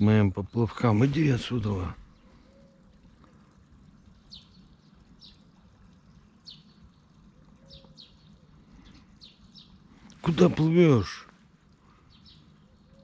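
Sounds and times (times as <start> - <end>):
quiet outdoor background: 0.0 - 13.0
small bird chirping: 0.5 - 11.3, 11.9 - 13.0.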